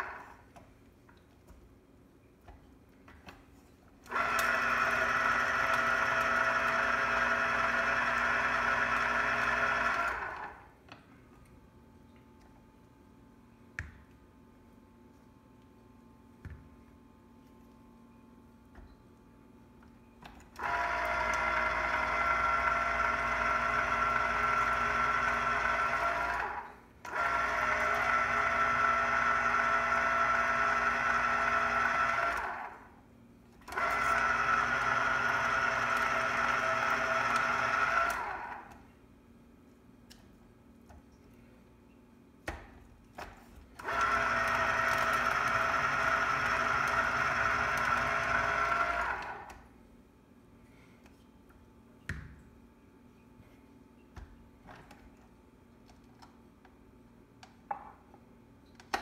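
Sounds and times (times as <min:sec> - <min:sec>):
citrus juicer motor spinning: 0:00.0 - 0:00.4, 0:04.0 - 0:10.7, 0:20.6 - 0:33.0, 0:33.6 - 0:38.8, 0:43.8 - 0:49.7.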